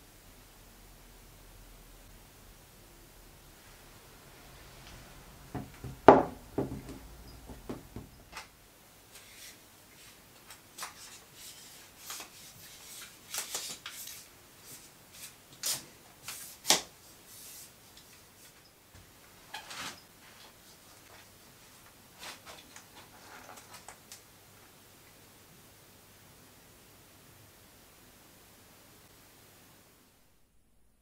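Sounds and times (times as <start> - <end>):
rubbing and sliding sounds: 9.1 - 18.7, 19.4 - 23.9.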